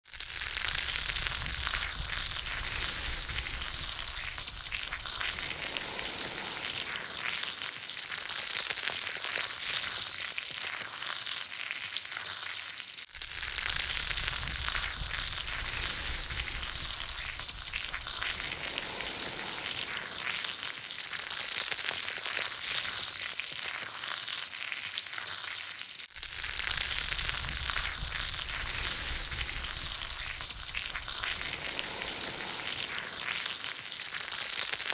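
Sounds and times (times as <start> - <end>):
charcoal fire crackling: 0.0 - 12.2, 13.1 - 34.9
chicken wings sizzling: 0.0 - 34.9.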